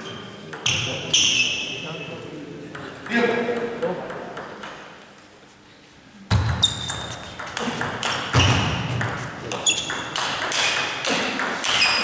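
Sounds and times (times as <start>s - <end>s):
table tennis ball hits: 2.7s - 5.0s, 6.3s - 12.0s.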